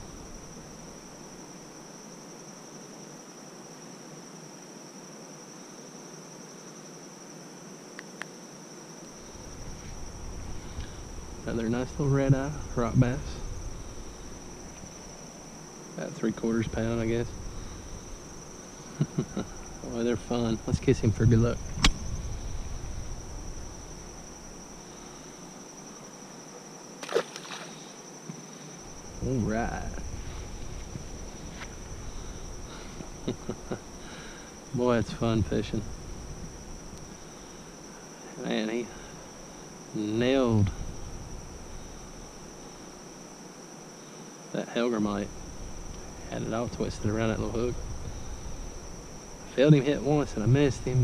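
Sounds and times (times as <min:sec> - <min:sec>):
insects trilling: 0:00.0 - 0:51.0
fish splashing in water: 0:27.0 - 0:27.9.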